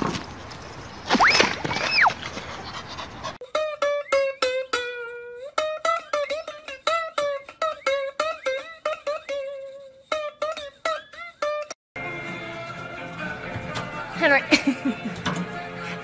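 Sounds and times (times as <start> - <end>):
plucked string melody: 3.4 - 15.8.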